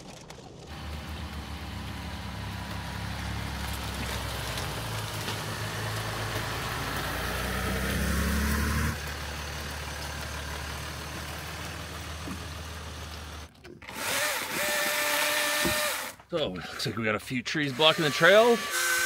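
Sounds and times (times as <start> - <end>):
car engine low hum: 0.0 - 13.6.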